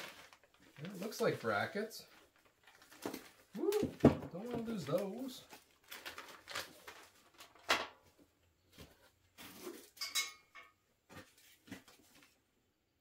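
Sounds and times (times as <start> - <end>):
plastic bags crinkling: 0.0 - 7.8.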